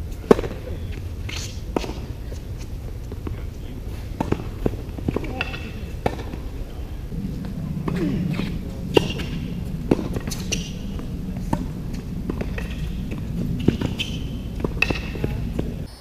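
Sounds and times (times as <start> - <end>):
racquet hitting tennis ball: 0.2 - 15.9
tennis ball bouncing: 0.2 - 15.9
sneakers squeaking on court: 8.9 - 15.9.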